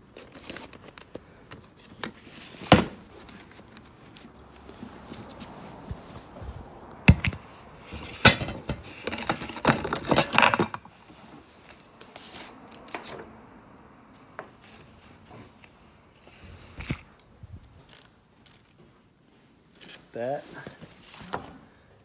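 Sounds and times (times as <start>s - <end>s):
knocks and rattling clatter: 7.0s - 11.1s.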